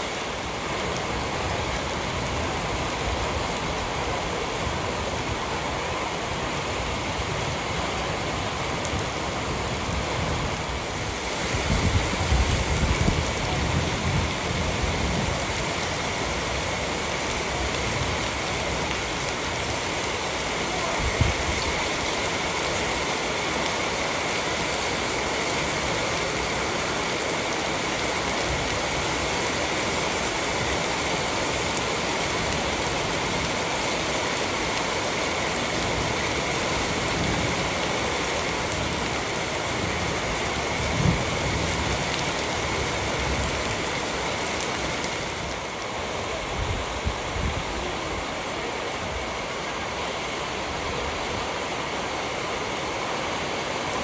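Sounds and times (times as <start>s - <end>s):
rain on hard surfaces: 0.0s - 54.0s.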